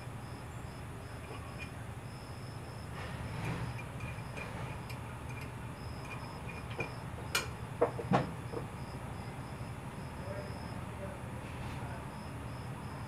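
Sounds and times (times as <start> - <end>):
light metal clicks and clinks: 3.8 - 7.6.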